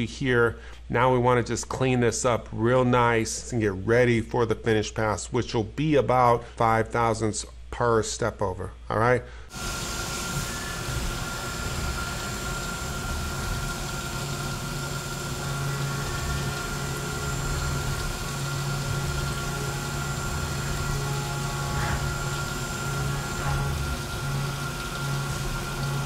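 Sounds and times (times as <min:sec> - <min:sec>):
coolant spraying hiss: 0:09.5 - 0:26.0
milling machine drone with high tone: 0:09.5 - 0:26.0.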